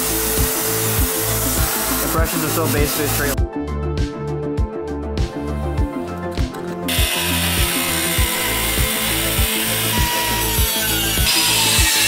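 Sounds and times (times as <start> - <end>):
background music with steady beat: 0.0 - 12.0
cut-off wheel grinding steel: 6.9 - 12.0.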